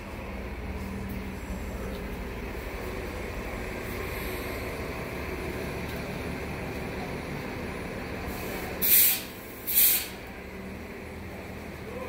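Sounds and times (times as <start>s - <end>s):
compressed air hissing: 8.3s - 10.2s.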